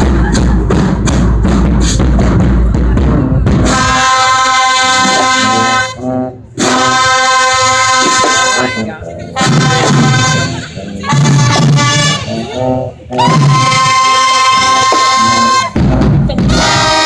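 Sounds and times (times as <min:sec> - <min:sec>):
drums beating: 0:00.0 - 0:17.0
marching band playing: 0:00.0 - 0:17.0
brass holding chords: 0:03.6 - 0:17.0.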